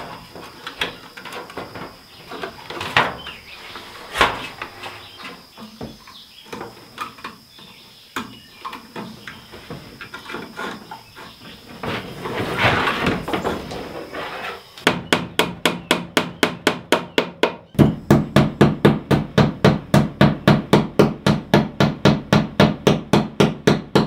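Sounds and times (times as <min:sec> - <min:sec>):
rustling: 0:00.0 - 0:05.8, 0:09.5 - 0:14.7.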